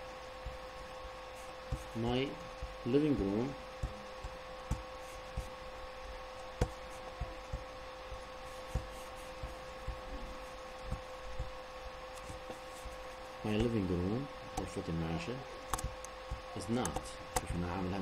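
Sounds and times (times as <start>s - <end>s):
soft low thumps: 0.0s - 13.8s
steady electrical hum: 0.0s - 18.0s.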